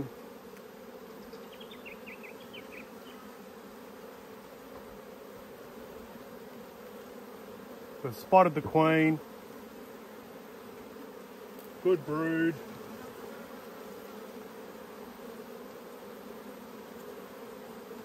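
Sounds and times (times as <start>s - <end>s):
bees buzzing: 0.0s - 18.0s.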